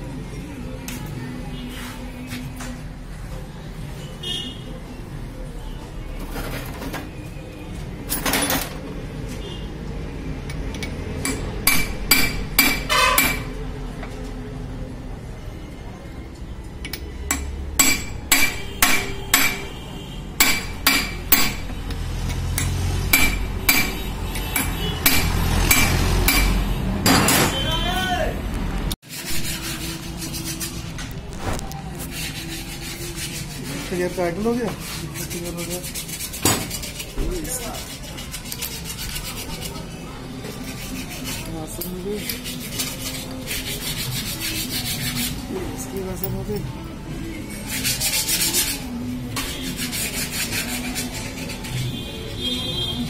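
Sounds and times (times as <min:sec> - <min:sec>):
spanner tapping metal shafts: 0:10.5 - 0:13.6, 0:16.8 - 0:19.7, 0:20.4 - 0:27.4
rhythmic rasping scrape: 0:17.4 - 0:26.8, 0:29.1 - 0:31.1, 0:31.9 - 0:45.8, 0:47.3 - 0:52.1.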